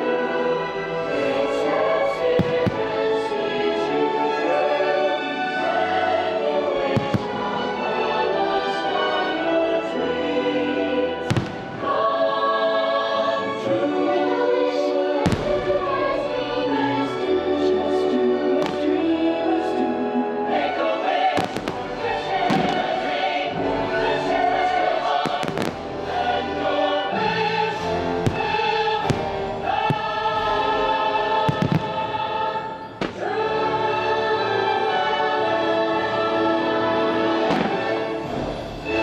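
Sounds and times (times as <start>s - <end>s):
choir singing held notes: 0.0s - 39.0s
orchestral show music: 0.0s - 39.0s
fireworks bangs: 2.3s - 3.1s, 6.9s - 7.6s, 11.3s - 11.9s, 15.2s - 15.9s, 21.3s - 23.3s, 25.1s - 25.9s, 28.2s - 30.6s, 31.4s - 32.3s, 32.9s - 33.4s, 37.4s - 38.6s.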